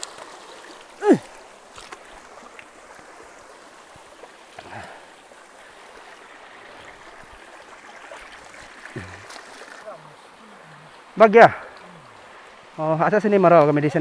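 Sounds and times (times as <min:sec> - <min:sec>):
stream flowing over rocks: 0:00.0 - 0:14.0
person crying out: 0:01.0 - 0:01.3.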